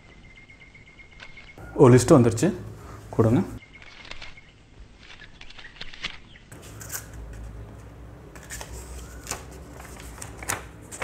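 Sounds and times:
paper rustling and crinkling: 0:03.8 - 0:07.8, 0:08.4 - 0:11.0.

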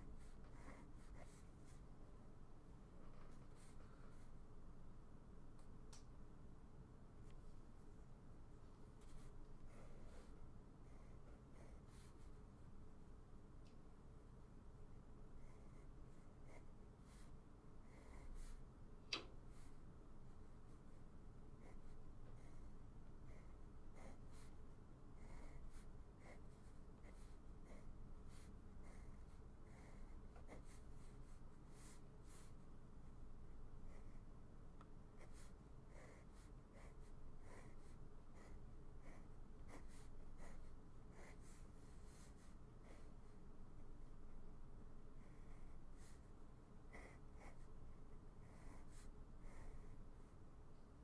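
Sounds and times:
pen scratching on paper: 0:00.2 - 0:01.8, 0:25.2 - 0:32.6, 0:35.2 - 0:43.1, 0:46.9 - 0:47.7, 0:48.4 - 0:49.9.

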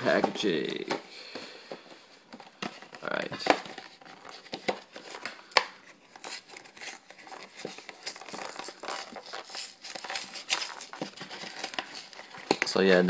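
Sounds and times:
packaging crinkled and torn: 0:03.0 - 0:12.8.

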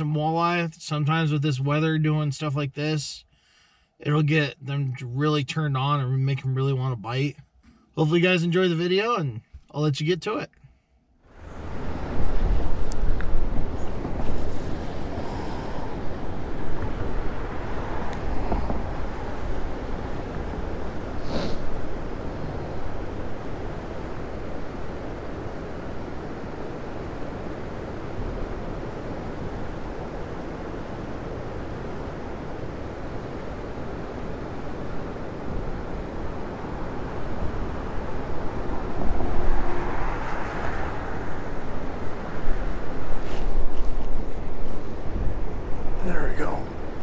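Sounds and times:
wind buffeting microphone: 0:11.3 - 0:47.0.

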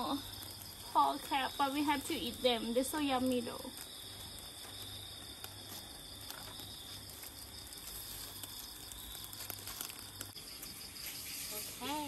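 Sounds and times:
crickets trilling: 0:00.0 - 0:12.0.

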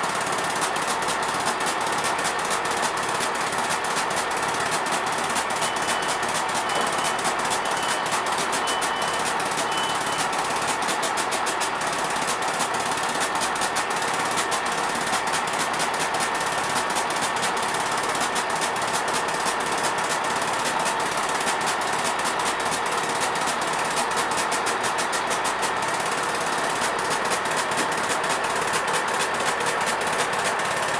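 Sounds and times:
train diesel engines idling: 0:00.1 - 0:30.9.

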